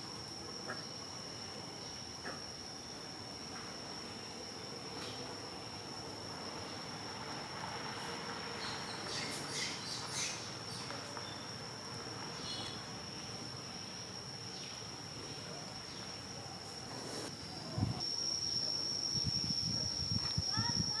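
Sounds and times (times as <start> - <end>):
insects droning: 0.0 - 21.0.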